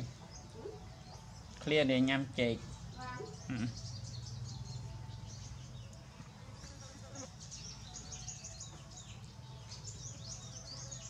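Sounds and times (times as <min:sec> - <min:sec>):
small birds chirping: 0:00.0 - 0:11.0.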